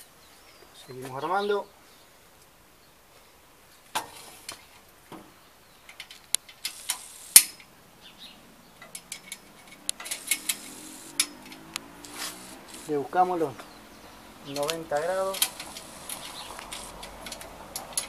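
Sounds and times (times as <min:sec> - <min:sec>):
metal clinks and knocks: 0:14.5 - 0:18.0.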